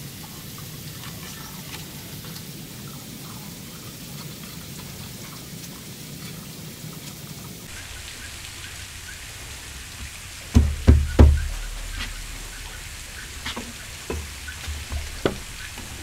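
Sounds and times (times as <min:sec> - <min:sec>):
steady hiss: 0:00.0 - 0:16.0
heavy thumps on wooden plank: 0:10.5 - 0:16.0.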